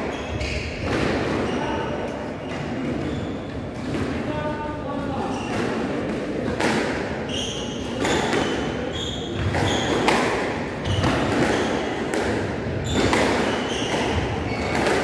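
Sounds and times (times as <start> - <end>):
shoes squeaking on wooden floor: 0.0 - 1.9, 2.8 - 3.7, 7.3 - 10.2, 12.8 - 15.0
squash ball cracking off rackets: 9.4 - 15.0.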